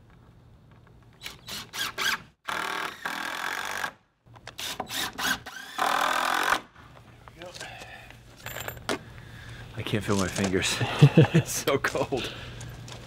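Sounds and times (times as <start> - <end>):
cordless drill driving screws: 4.5 - 6.6.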